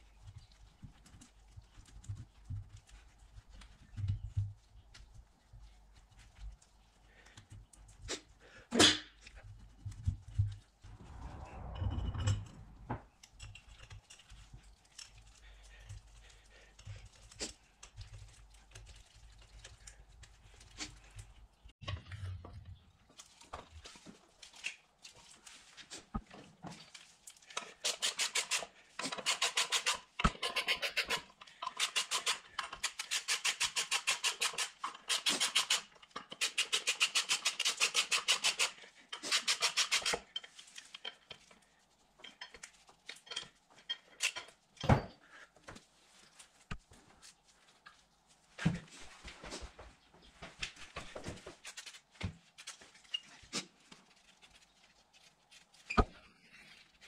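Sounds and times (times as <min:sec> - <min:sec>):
parts being handled: 0:00.0 - 0:57.0.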